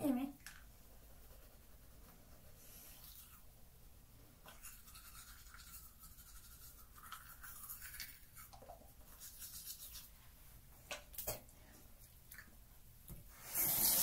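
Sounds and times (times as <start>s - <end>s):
toothbrush scrubbing teeth: 0.4s - 3.5s, 4.4s - 10.2s.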